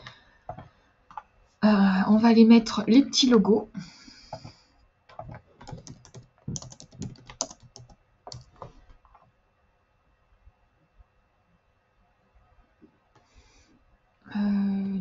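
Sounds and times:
typing on computer keyboard: 5.1 - 9.3.

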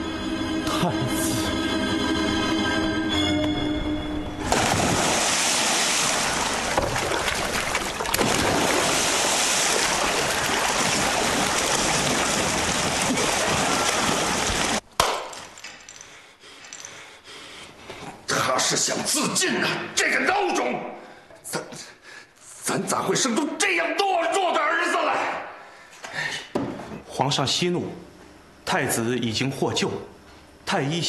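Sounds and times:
person splashing in water: 4.4 - 14.8.

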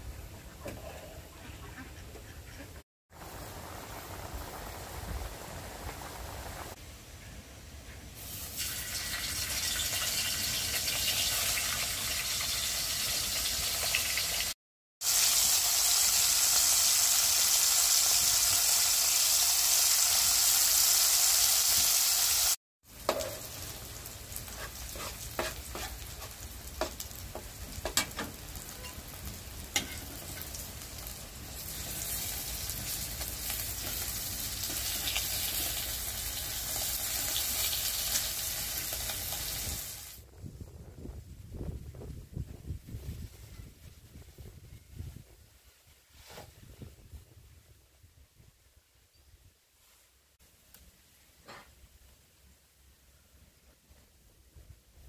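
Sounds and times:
fish sizzling in oil: 8.2 - 40.2.

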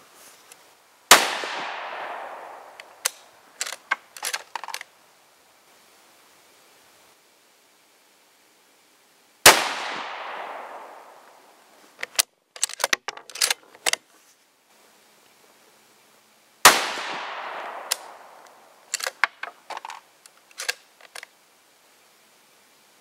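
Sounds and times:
rifle shots ringing out: 1.1 - 3.1, 9.5 - 11.2, 16.7 - 18.6
rifle bolt metallic clicks: 1.4 - 4.9, 12.0 - 14.0, 17.0 - 21.3.

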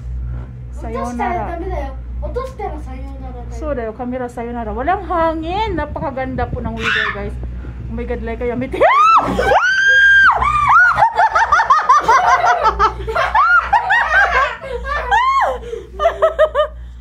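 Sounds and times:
high voices squealing and laughing: 6.8 - 7.3, 8.8 - 11.6, 13.2 - 15.6.

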